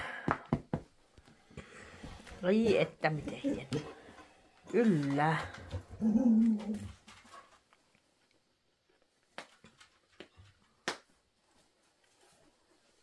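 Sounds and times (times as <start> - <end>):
dog whining: 5.8 - 6.9.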